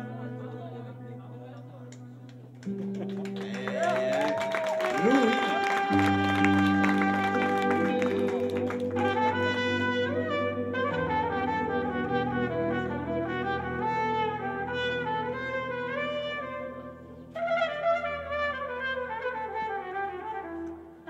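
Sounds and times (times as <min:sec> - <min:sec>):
band holding low notes: 0:00.0 - 0:18.8
trumpet playing slow melody: 0:04.8 - 0:21.0.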